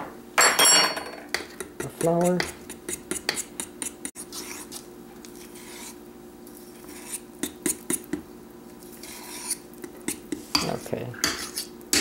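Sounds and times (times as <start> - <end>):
spoon scraping steel bowl: 6.6 - 8.0, 8.9 - 11.8.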